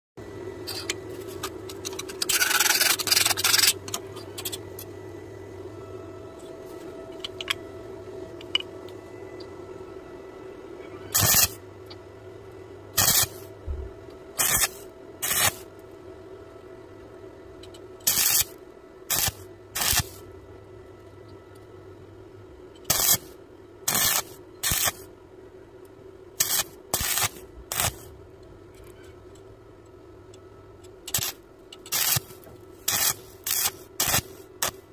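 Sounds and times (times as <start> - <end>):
steady low hum: 0.2 - 34.9
crackling welding arc bursts: 11.1 - 11.6, 13.0 - 13.5, 14.4 - 15.7, 18.0 - 20.2, 22.9 - 25.1, 26.4 - 28.1, 31.1 - 34.8.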